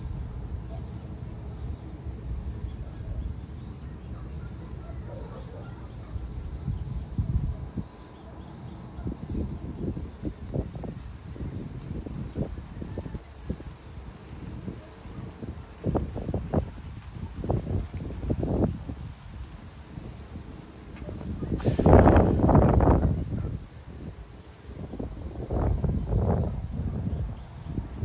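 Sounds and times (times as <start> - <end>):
high-pitched insect chorus: 0.0 - 28.0
wind buffeting microphone: 1.7 - 28.0.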